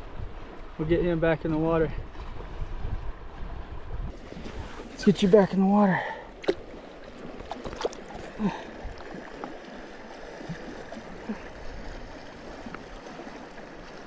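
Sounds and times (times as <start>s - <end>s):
river water rushing: 4.1s - 14.0s
faint small splashes: 6.0s - 14.0s.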